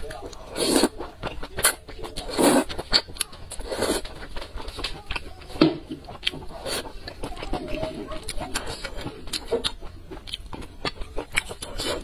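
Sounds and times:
slurping noodles: 0.0s - 4.8s, 6.1s - 9.8s, 10.9s - 12.0s.

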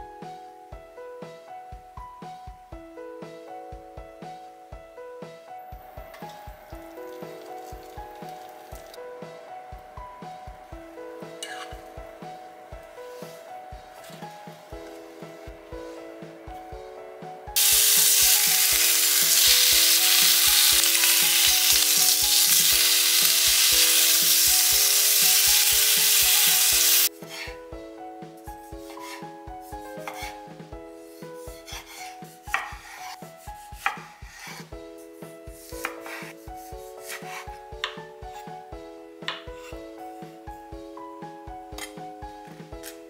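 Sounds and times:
light background music: 0.0s - 43.0s
bacon sizzling in a pan: 17.6s - 27.1s.

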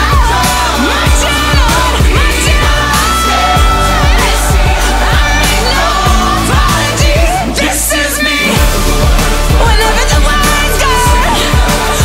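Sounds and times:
pop music with steady beat: 0.0s - 12.0s.

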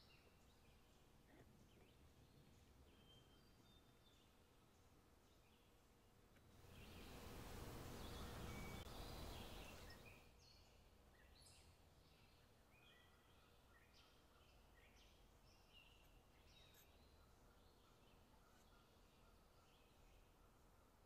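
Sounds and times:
faint hiss: 0.0s - 14.2s.

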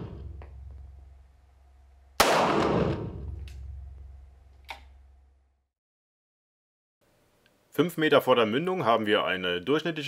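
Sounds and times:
pistol shot with echo: 2.2s - 3.4s.

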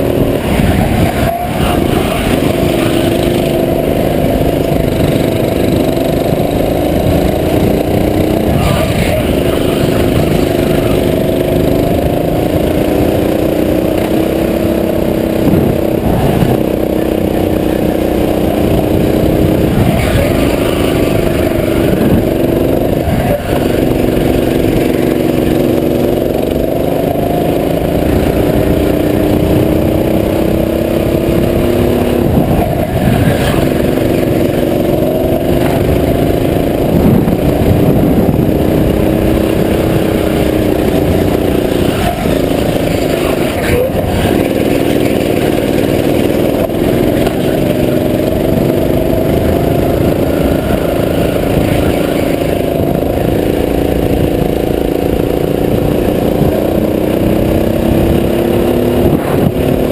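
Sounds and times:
go-kart engine running: 0.0s - 59.9s.

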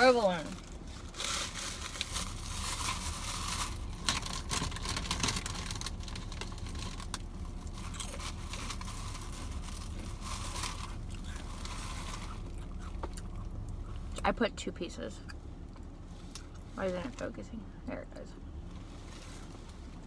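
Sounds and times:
paper and plastic bag crinkling: 0.1s - 13.1s.

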